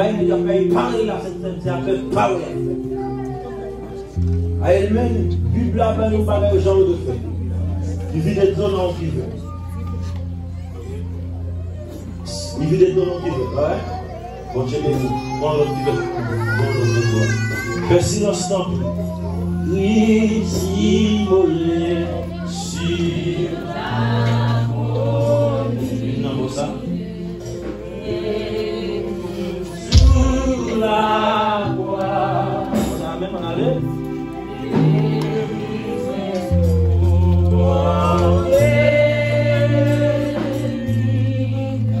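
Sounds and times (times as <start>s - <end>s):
group of voices singing: 20.0s - 42.0s
long held low notes: 29.9s - 31.3s
sustained low chords: 29.9s - 31.3s.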